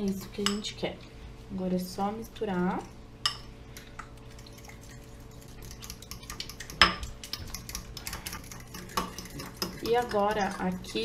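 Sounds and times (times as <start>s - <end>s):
utensil stirring sauce in glass bowl: 4.2s - 11.0s.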